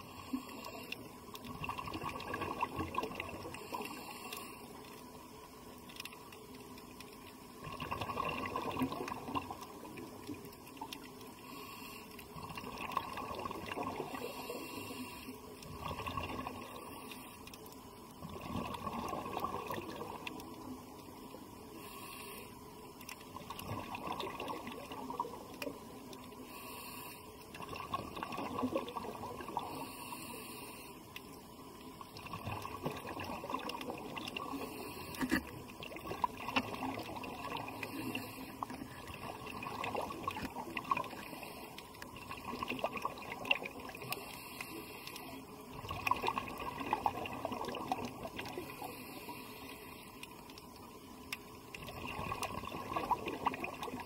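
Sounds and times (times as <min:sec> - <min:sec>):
underwater water washing: 0:00.0 - 0:54.0
faint clicks: 0:03.0 - 0:07.6, 0:09.0 - 0:11.4, 0:14.8 - 0:18.2, 0:19.8 - 0:23.7, 0:24.7 - 0:27.6, 0:29.6 - 0:32.8, 0:43.4 - 0:46.2, 0:47.8 - 0:52.5.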